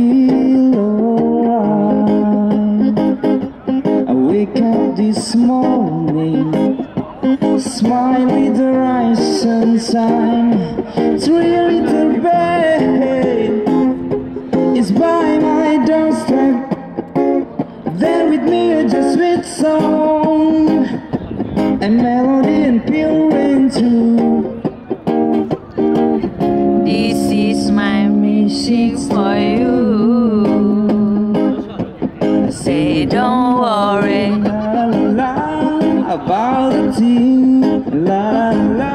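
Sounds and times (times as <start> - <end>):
acoustic guitar strumming: 0.0 - 38.9
person singing: 4.1 - 17.0, 26.6 - 31.6, 32.4 - 38.9.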